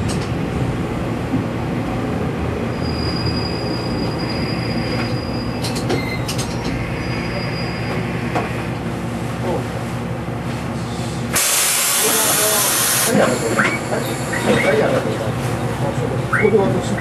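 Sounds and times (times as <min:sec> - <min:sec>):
railcar engine humming: 0:00.0 - 0:17.0
high brake squeal: 0:02.7 - 0:08.3.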